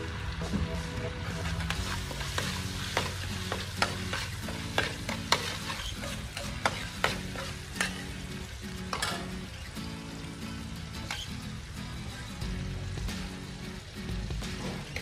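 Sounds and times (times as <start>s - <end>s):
food sizzling: 0.0s - 15.0s
spatula scraping a wok: 1.3s - 9.5s, 11.0s - 11.4s.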